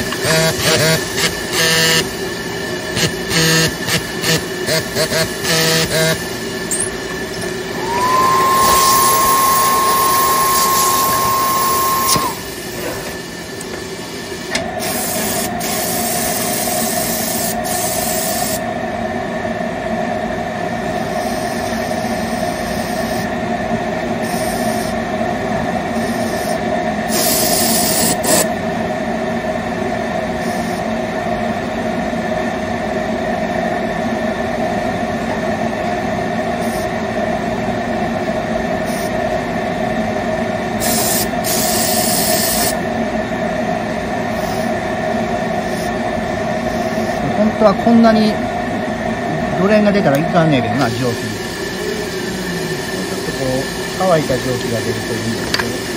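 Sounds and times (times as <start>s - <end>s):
spotting machine running: 0.0s - 19.2s, 40.7s - 55.9s
steam gun hissing: 3.9s - 18.6s, 40.8s - 42.8s.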